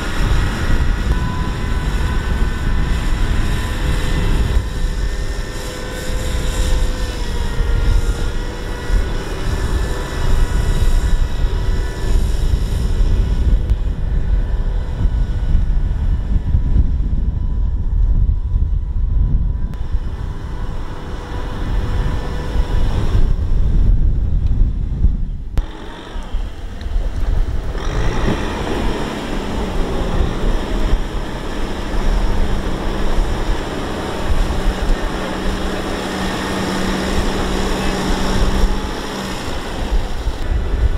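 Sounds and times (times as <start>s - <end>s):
tractor diesel engine running: 0.0s - 40.9s.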